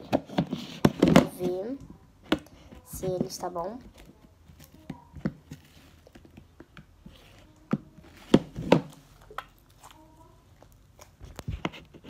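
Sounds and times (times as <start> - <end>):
objects tapping and knocking: 0.0 - 9.6.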